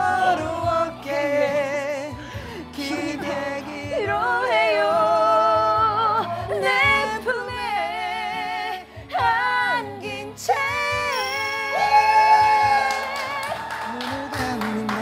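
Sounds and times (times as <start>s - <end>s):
man singing a slow ballad: 0.0s - 4.2s, 13.9s - 15.0s
woman singing a slow ballad: 2.7s - 14.4s.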